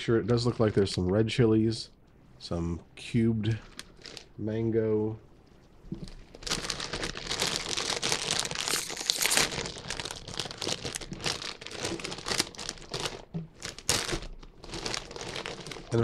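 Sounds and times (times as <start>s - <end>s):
chip bag crinkling: 3.6s - 4.3s, 6.0s - 16.0s.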